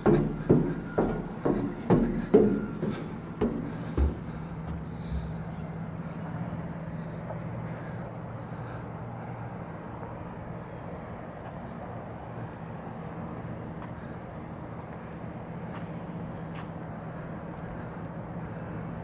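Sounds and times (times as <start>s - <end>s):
footsteps on metal plate: 0.0s - 5.7s
steady low hum: 0.0s - 19.0s.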